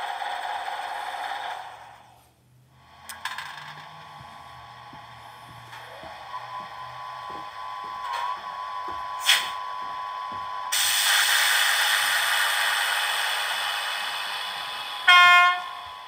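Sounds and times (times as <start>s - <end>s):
loud hiss: 9.2s - 9.6s, 10.7s - 15.1s.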